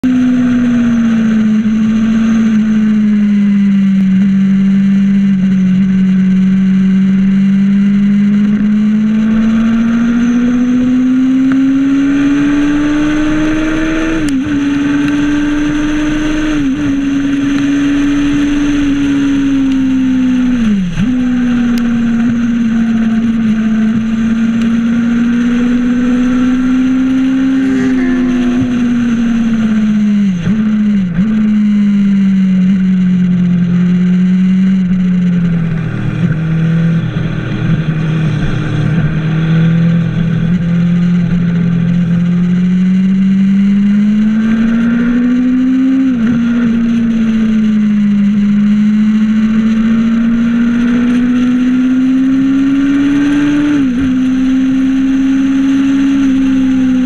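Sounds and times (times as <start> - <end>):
racing engine at high revs: 0.0 - 57.0
rushing wind: 11.7 - 43.3.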